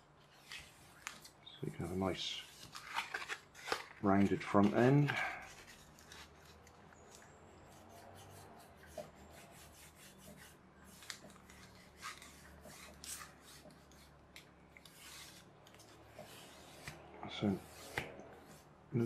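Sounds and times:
pencil scratching on foam: 0:07.5 - 0:11.0, 0:11.8 - 0:14.2, 0:14.9 - 0:18.8.

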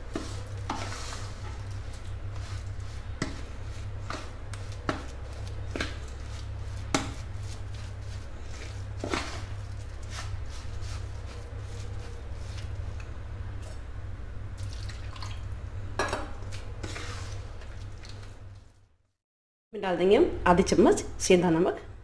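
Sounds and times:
spoon scraping through batter: 0:00.0 - 0:13.1
steady low hum: 0:00.0 - 0:18.8.

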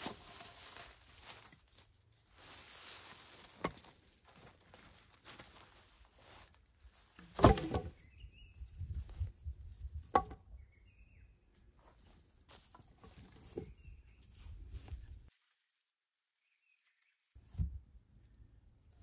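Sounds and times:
rustling and handling noise: 0:00.0 - 0:08.0, 0:11.8 - 0:16.0.

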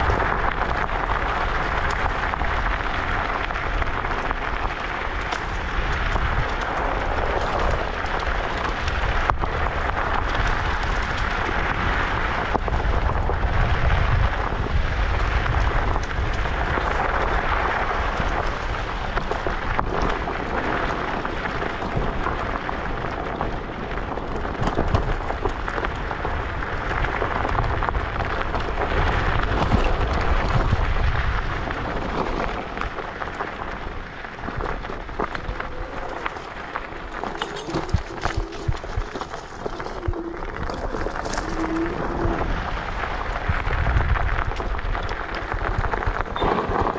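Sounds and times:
tyre rumble: 0:00.0 - 0:46.9
wind buffeting microphone: 0:00.0 - 0:46.9.

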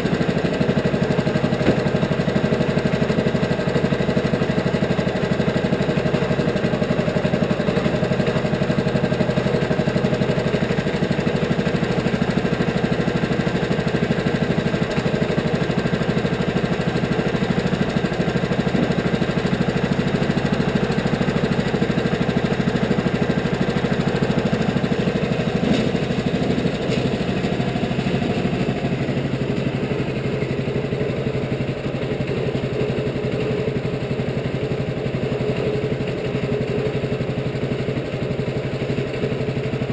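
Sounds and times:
sawmill engine running: 0:00.0 - 0:39.9.

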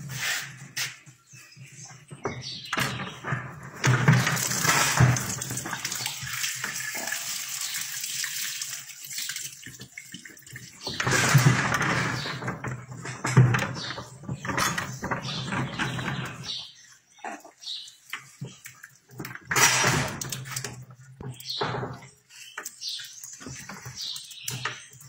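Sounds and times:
fluid sloshing and splashing: 0:03.8 - 0:13.0.

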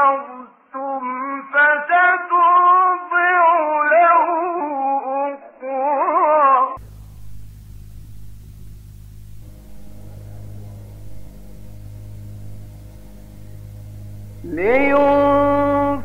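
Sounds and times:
low steady hum: 0:06.8 - 0:16.0
man chanting melodically: 0:14.2 - 0:16.0.

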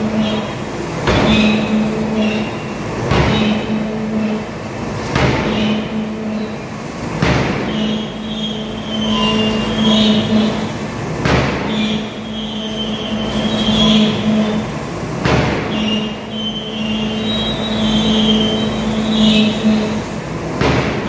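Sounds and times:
forging hammer striking steel: 0:00.0 - 0:04.4, 0:07.2 - 0:10.6, 0:20.6 - 0:21.0
machine hum: 0:00.0 - 0:21.0
high metallic squeal: 0:01.2 - 0:04.4, 0:07.7 - 0:10.8, 0:11.7 - 0:14.8, 0:15.6 - 0:20.2.

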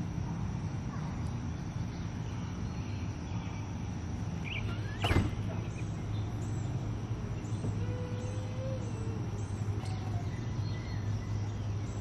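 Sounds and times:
steady low hum: 0:00.0 - 0:12.0
faint bird chirps: 0:04.4 - 0:12.0.

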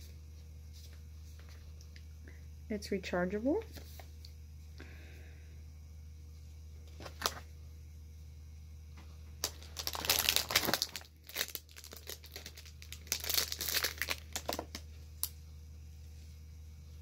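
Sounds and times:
plastic packaging crinkling: 0:06.9 - 0:07.4, 0:09.4 - 0:15.4.

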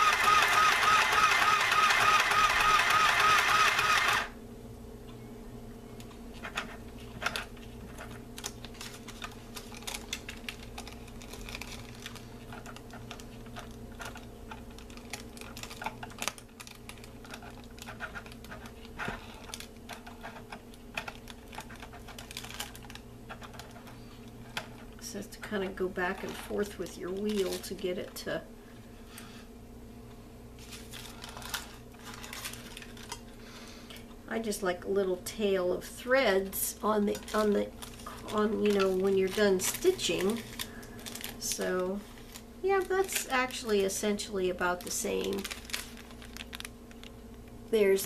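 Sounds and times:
sewing machine stitching: 0:00.0 - 0:04.3
paper being handled: 0:06.4 - 0:20.5, 0:30.6 - 0:33.1, 0:37.1 - 0:43.9.

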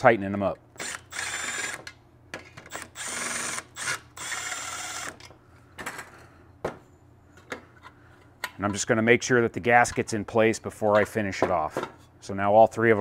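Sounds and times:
cordless driver spinning bolts: 0:00.8 - 0:01.8, 0:02.7 - 0:05.2.

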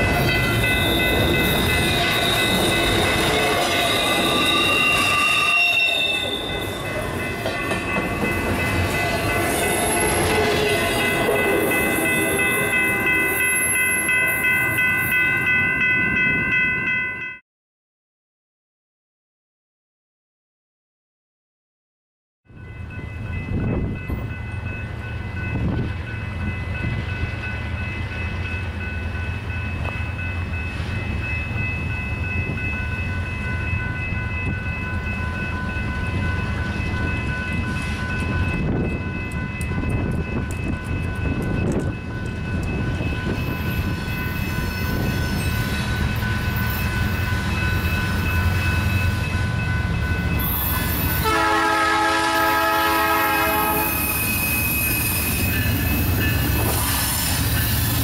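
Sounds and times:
train horn chord: 0:51.2 - 0:54.0.

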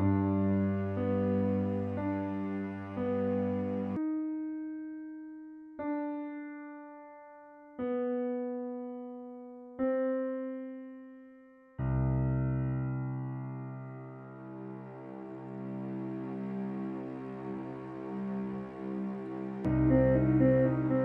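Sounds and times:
slow sparse film score notes: 0:14.6 - 0:21.0.

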